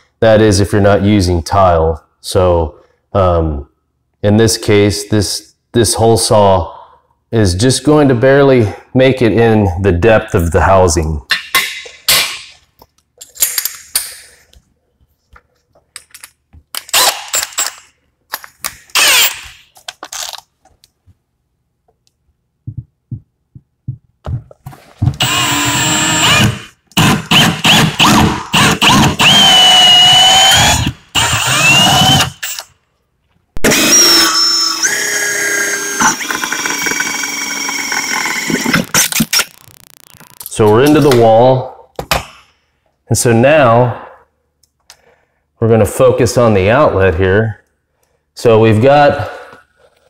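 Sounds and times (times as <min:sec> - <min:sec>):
drill with hole saw whining: 0:16.9 - 0:17.8, 0:19.0 - 0:19.6, 0:25.2 - 0:32.7, 0:33.6 - 0:40.3.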